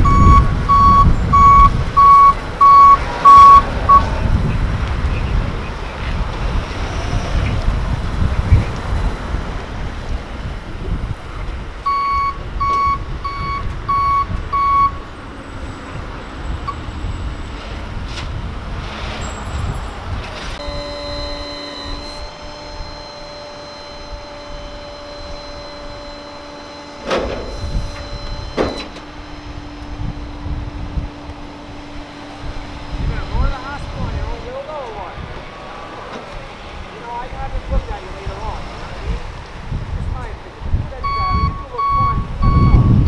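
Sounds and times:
truck reversing alarm beeps: 0:00.0 - 0:04.1, 0:11.8 - 0:17.3, 0:20.6 - 0:34.5, 0:41.0 - 0:43.0
street traffic rumble: 0:00.0 - 0:43.0
steady hum of held tones: 0:20.6 - 0:34.6.

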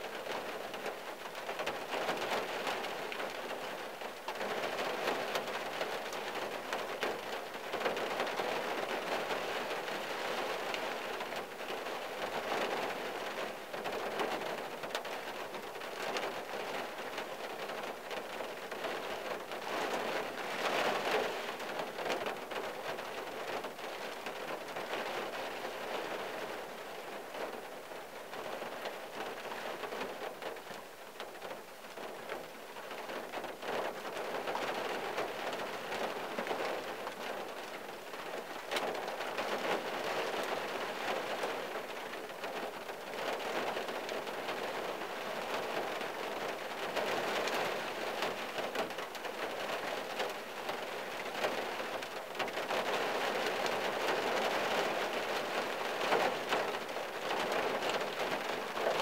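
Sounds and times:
rain on car windshield and roof: 0:00.0 - 0:59.0.

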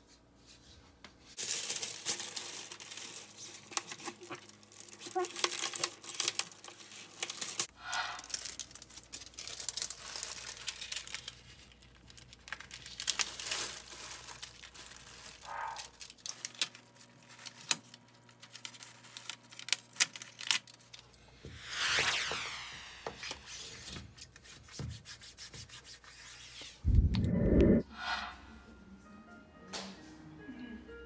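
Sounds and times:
plastic sheet crinkling: 0:01.4 - 0:21.0.

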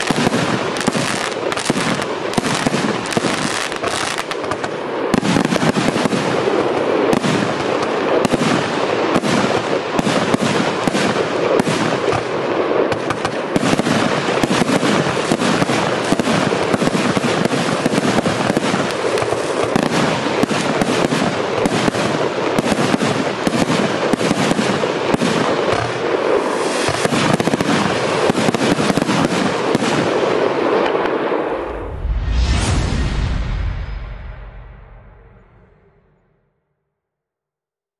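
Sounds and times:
firework barrage: 0:00.0 - 0:36.4
rising whoosh: 0:31.5 - 0:36.3.

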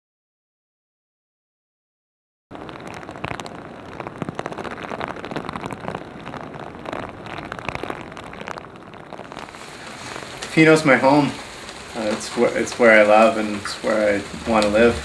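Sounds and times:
rain pattering: 0:02.5 - 0:15.0.

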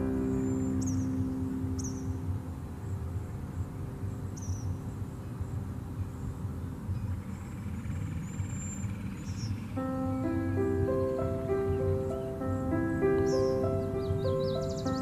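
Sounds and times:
background music chord: 0:00.0 - 0:06.0, 0:09.8 - 0:15.0
low outdoor rumble: 0:00.0 - 0:07.8, 0:09.8 - 0:15.0
birds chirping: 0:00.0 - 0:15.0.

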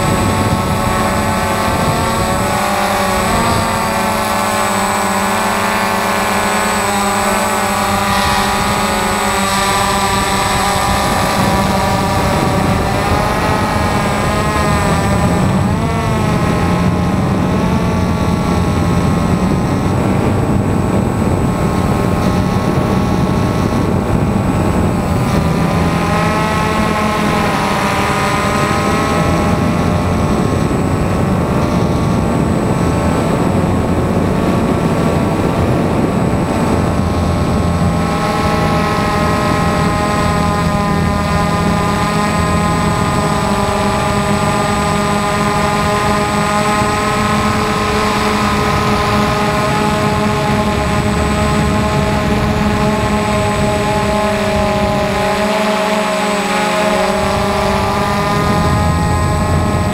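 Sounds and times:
drone motors whining: 0:00.0 - 0:59.9
steady high-pitched tone: 0:00.0 - 0:59.9.

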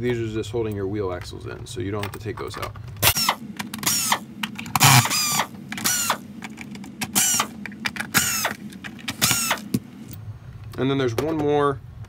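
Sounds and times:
cordless drill running slowly: 0:03.0 - 0:06.2, 0:07.1 - 0:07.6, 0:08.2 - 0:08.6, 0:09.2 - 0:09.7.

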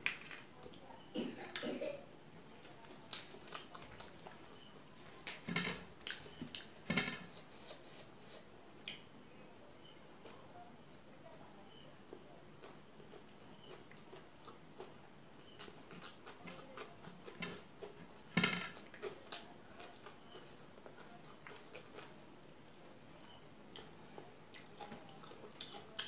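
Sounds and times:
mouth smacking and chewing: 0:02.6 - 0:04.4, 0:12.6 - 0:18.2, 0:23.4 - 0:26.0.

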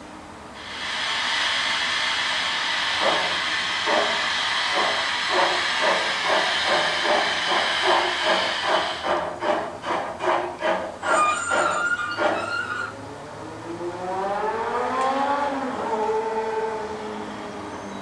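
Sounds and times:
steam hiss: 0:00.6 - 0:12.9
locomotive chuffing: 0:00.6 - 0:13.1.

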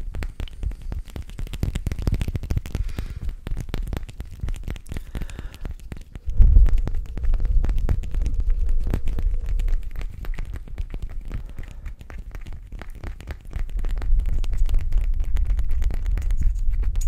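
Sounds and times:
low rumble: 0:06.2 - 0:10.4.

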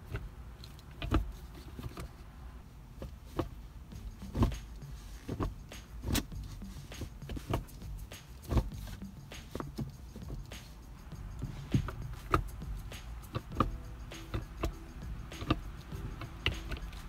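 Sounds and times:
gear lever clicks and clunks: 0:13.2 - 0:17.0.

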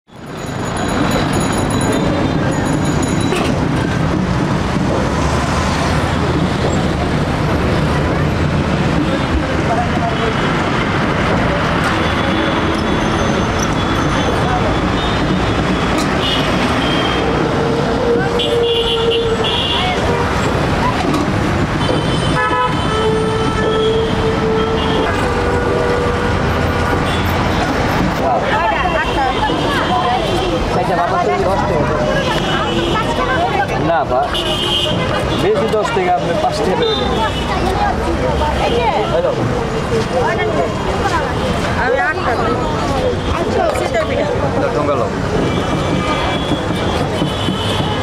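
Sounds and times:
city traffic rumble: 0:00.0 - 0:48.0
vehicle horns honking: 0:11.8 - 0:20.5, 0:21.7 - 0:27.6, 0:32.0 - 0:33.4, 0:34.2 - 0:37.7, 0:45.4 - 0:48.0.

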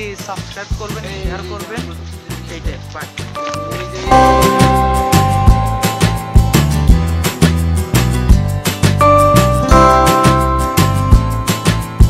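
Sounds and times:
background music with steady beat: 0:00.0 - 0:12.0
repeating bass line: 0:03.6 - 0:12.0.

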